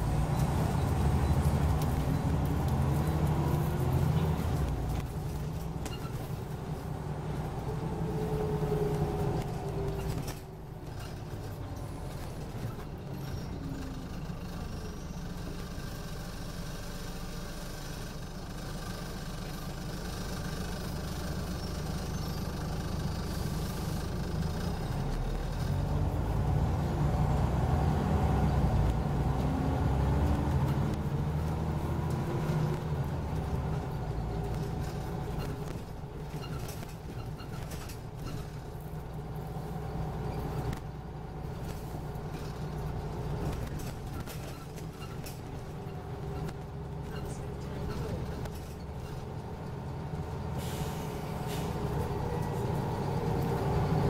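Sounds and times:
bus diesel engine rumble: 0.0s - 54.0s.

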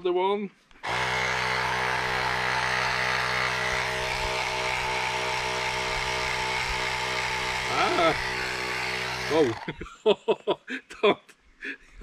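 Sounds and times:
portable compressor running: 0.8s - 9.8s.

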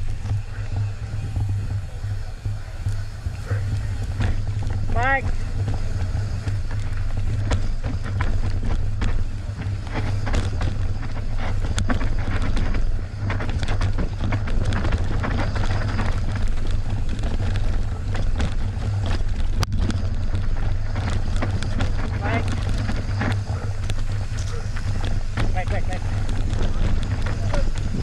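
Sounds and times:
bike rattling over ground: 0.0s - 28.0s
wind buffeting microphone: 0.0s - 28.0s.

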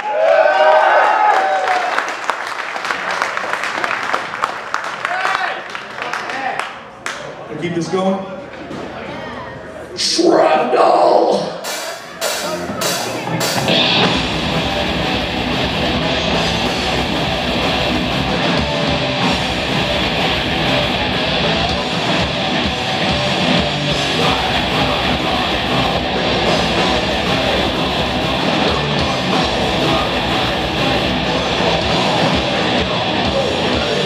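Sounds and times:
heavy metal band playing: 10.0s - 34.0s.

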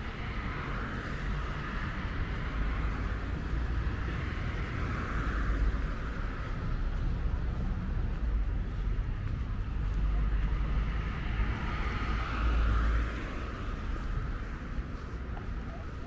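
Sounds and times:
steady low traffic rumble: 0.0s - 16.0s
vehicles passing: 0.0s - 16.0s.

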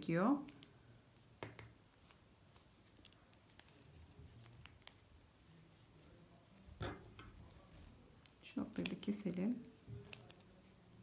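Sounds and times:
faint ticks and rustles of yarn: 0.2s - 6.7s.

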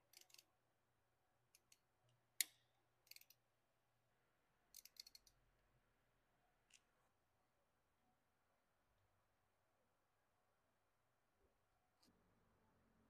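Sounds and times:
ratchet wrench clicks: 0.1s - 0.5s, 2.4s - 3.4s, 4.8s - 5.3s.

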